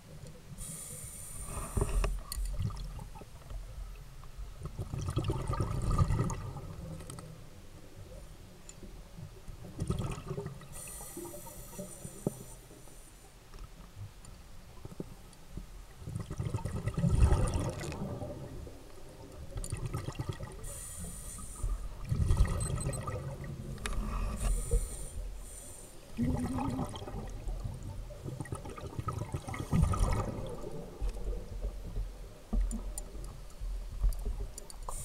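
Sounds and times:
muffled underwater bubbling: 16.0 - 18.8, 19.6 - 35.0.

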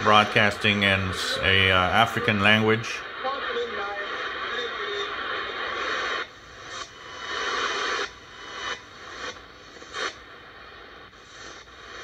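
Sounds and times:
radio static being tuned: 0.0 - 12.0.

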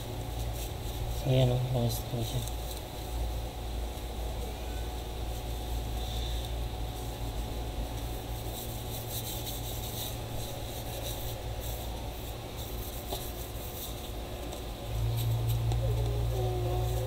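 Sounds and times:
tissue rubbing on phone panel: 6.9 - 14.3.

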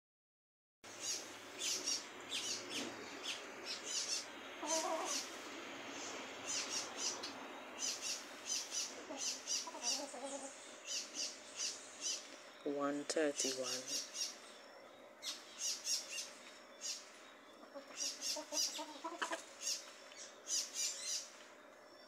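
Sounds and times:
hen clucking: 1.6 - 5.3, 7.8 - 12.2, 17.6 - 19.8.

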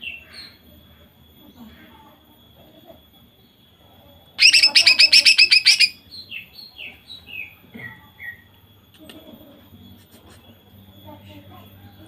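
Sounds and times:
bird singing: 4.4 - 8.6.

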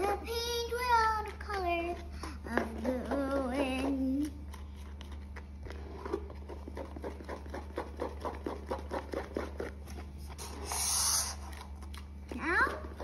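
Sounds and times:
loud hiss: 10.6 - 11.4.

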